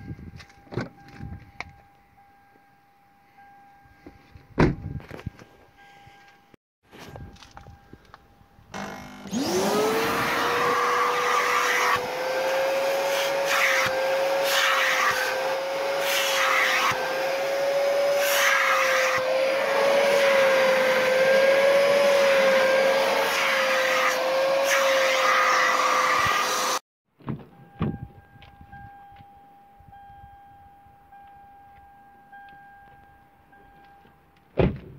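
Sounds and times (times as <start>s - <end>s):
vacuum cleaner motor whine: 8.8s - 26.8s.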